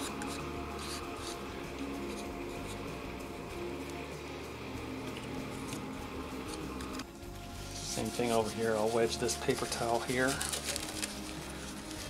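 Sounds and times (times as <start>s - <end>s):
soft background music: 0.0s - 12.0s
wet paper towel rustling: 7.6s - 12.0s.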